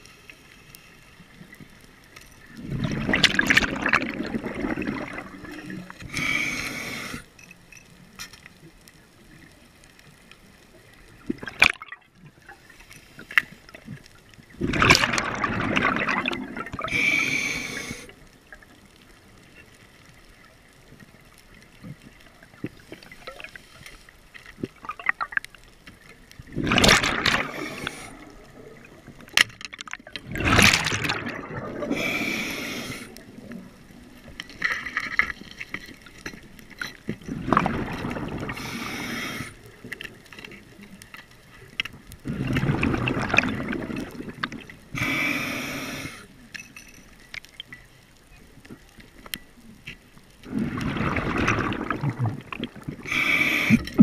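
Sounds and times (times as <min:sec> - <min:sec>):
exhaled bubbles underwater: 0:02.4 - 0:07.0, 0:11.2 - 0:12.3, 0:13.7 - 0:18.7, 0:26.4 - 0:35.3, 0:37.1 - 0:40.2, 0:42.2 - 0:45.1, 0:50.4 - 0:54.0
regulator hissing inhalations: 0:06.1 - 0:07.3, 0:16.9 - 0:18.1, 0:27.5 - 0:28.3, 0:31.9 - 0:33.2, 0:38.6 - 0:39.6, 0:45.0 - 0:46.3, 0:53.0 - 0:54.0.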